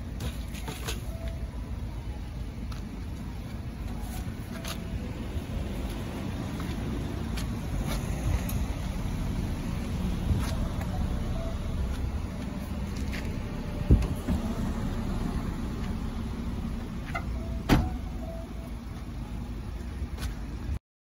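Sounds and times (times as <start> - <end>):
car park rumble: 0.0 - 20.8
car boot lid slamming shut: 17.6 - 18.0.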